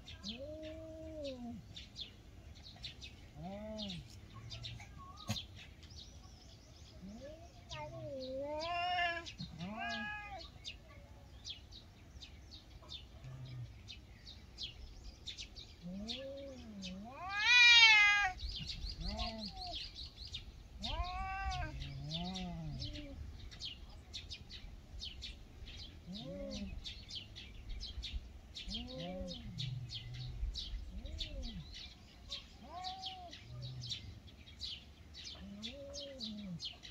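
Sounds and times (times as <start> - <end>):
cats yowling: 7.0 - 10.5, 15.8 - 19.8, 20.8 - 23.2, 26.1 - 26.8, 28.7 - 29.6, 32.5 - 33.8
cat screeching: 7.8 - 10.4, 17.1 - 18.4, 20.8 - 21.8.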